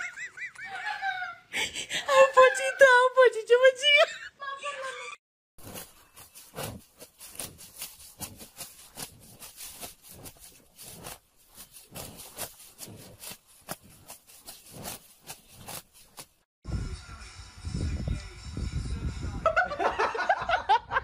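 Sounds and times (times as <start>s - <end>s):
cow tearing grass: 5.6s - 16.5s.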